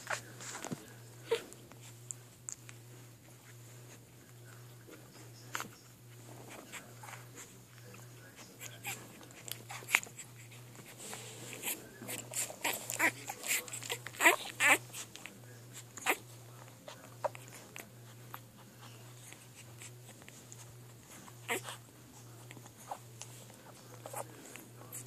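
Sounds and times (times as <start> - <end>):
puppies suckling: 0.0 - 25.0
puppy squeaks: 11.6 - 15.1.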